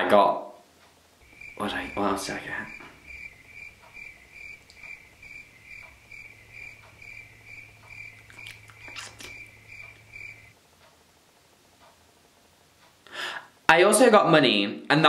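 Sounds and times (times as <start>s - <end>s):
crickets chirping: 1.2s - 10.6s
low hum: 1.2s - 11.5s
faint clicks: 2.7s - 11.0s.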